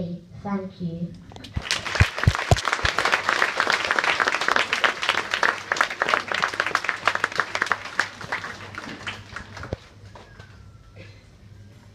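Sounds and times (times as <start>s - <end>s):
audience applause: 1.6s - 10.3s.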